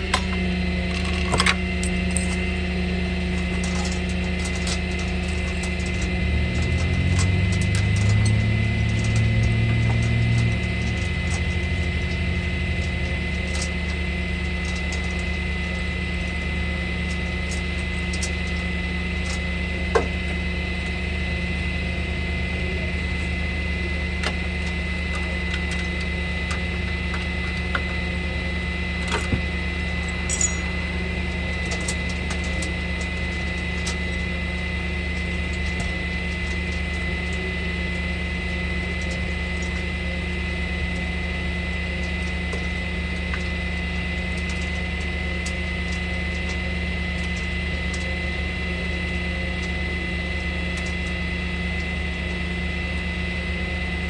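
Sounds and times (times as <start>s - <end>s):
chain clinking: 6.8s - 11.6s, 30.3s - 30.7s.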